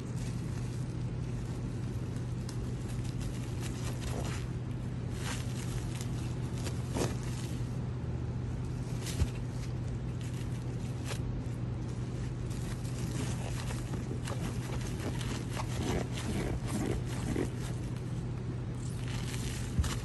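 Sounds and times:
low background hum: 0:00.0 - 0:20.0
plastic rustling and crinkling: 0:00.0 - 0:20.0.

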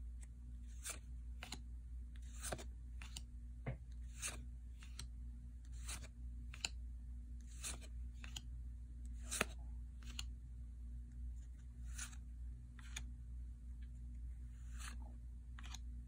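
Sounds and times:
faint low hum: 0:00.0 - 0:16.0
cards being flipped: 0:00.6 - 0:01.6, 0:02.2 - 0:03.3, 0:03.9 - 0:05.1, 0:05.7 - 0:06.8, 0:07.4 - 0:08.5, 0:09.1 - 0:10.3, 0:11.4 - 0:12.2, 0:12.8 - 0:13.1, 0:14.4 - 0:15.8.

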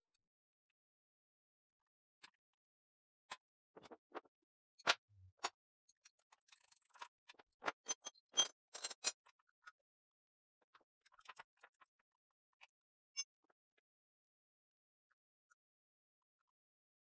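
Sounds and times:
metal tools clicking and clinking: 0:07.9 - 0:09.1.

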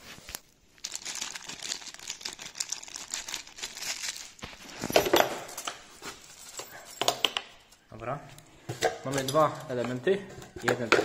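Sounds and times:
packaging crinkling and rustling: 0:00.0 - 0:05.2.

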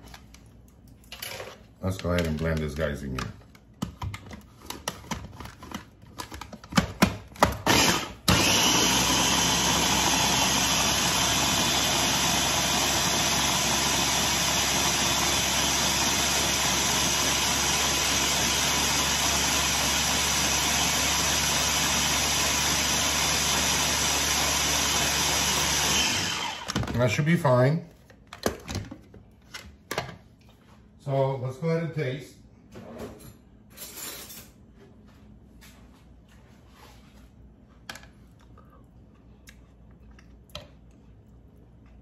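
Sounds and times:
clicks and knocks of plastic: 0:01.9 - 0:07.6
food chopper motor running: 0:07.6 - 0:27.0.

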